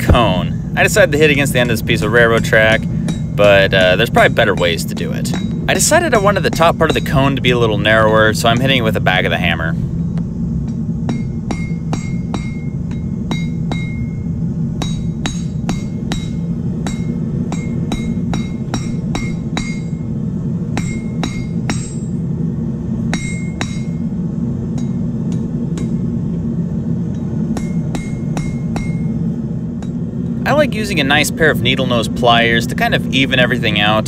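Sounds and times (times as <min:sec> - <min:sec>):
steady low hum: 0:00.0 - 0:34.0
hammer striking metal: 0:01.7 - 0:07.6, 0:10.7 - 0:20.1, 0:20.7 - 0:22.2, 0:23.1 - 0:24.0, 0:24.7 - 0:26.1, 0:27.1 - 0:29.2.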